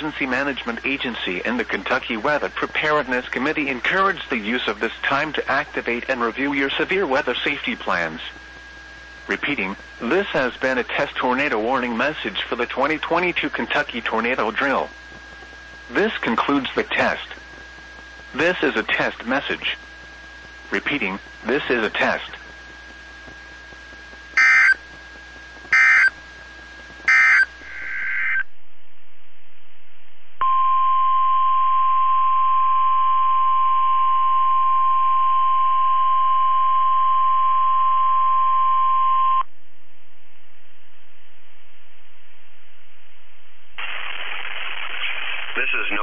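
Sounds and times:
radio broadcast: 0:00.0 - 0:24.8, 0:27.1 - 0:28.6, 0:43.8 - 0:46.0
receiver hiss: 0:00.0 - 0:39.5, 0:40.1 - 0:46.0
weather radio alert tone: 0:24.4 - 0:24.8, 0:25.7 - 0:26.2, 0:27.1 - 0:28.5
digital data bursts: 0:43.8 - 0:46.0.

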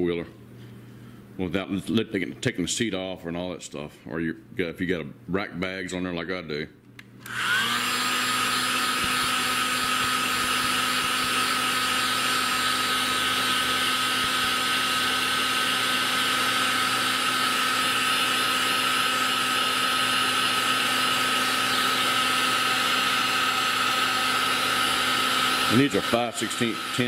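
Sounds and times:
hot air gun fan whine: 0:07.2 - 0:27.0.

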